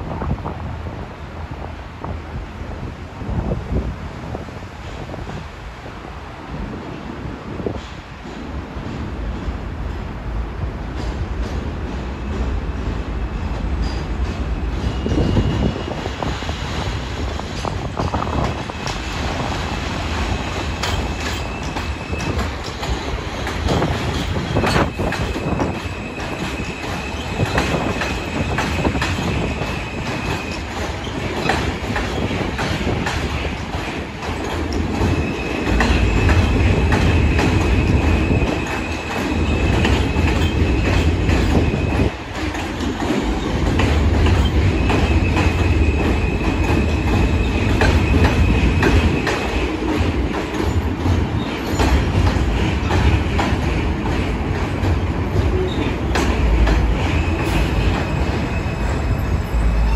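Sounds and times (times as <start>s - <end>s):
train wheels rumbling and clacking: 0.0s - 59.9s
high wheel squeal: 57.1s - 59.9s.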